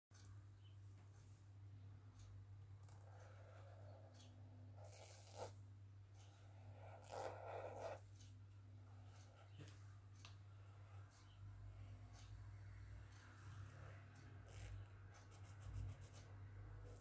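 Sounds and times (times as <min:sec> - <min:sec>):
low steady hum: 0:00.1 - 0:17.0
marker scratching on paper: 0:04.8 - 0:05.6, 0:06.2 - 0:08.3, 0:13.6 - 0:17.0.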